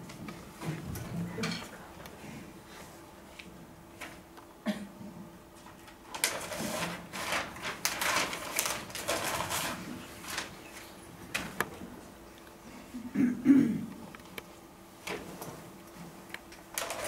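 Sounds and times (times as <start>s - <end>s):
paper rustling and crumpling: 6.1s - 11.5s, 16.7s - 17.0s.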